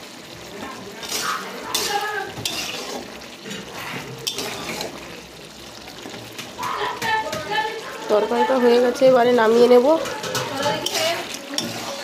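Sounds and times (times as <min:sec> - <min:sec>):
metal spatula scraping curry: 0:00.8 - 0:05.2, 0:09.4 - 0:12.0
spatula knocking on pan: 0:06.4 - 0:07.6, 0:09.9 - 0:11.8.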